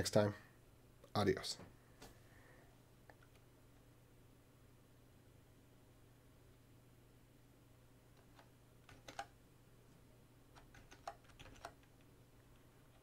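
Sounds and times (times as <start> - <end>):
keyboard keystrokes: 8.2 - 9.3, 10.6 - 12.0.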